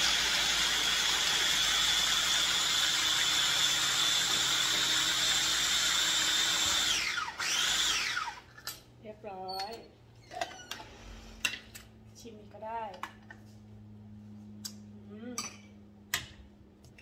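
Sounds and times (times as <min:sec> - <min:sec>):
food chopper motor whining: 0:00.0 - 0:08.6.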